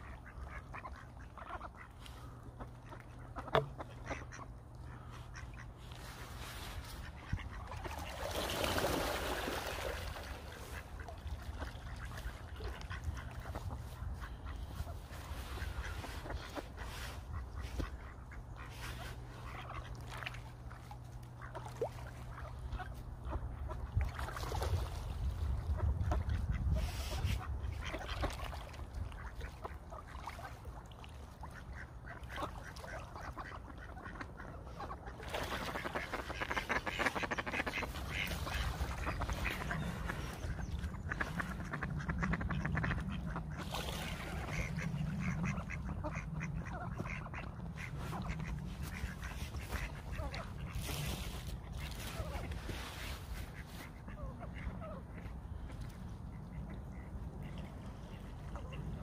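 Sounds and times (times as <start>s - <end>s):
ducks quacking: 0.0s - 59.0s
waterfowl calls: 0.0s - 59.0s
steady low rumble: 10.1s - 30.0s, 35.8s - 59.0s.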